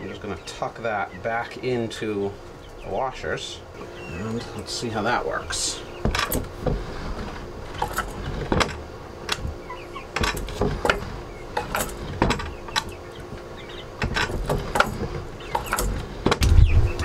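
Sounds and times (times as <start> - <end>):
metal latch and weights rattling: 6.0 - 6.6, 7.7 - 13.0, 13.7 - 16.5.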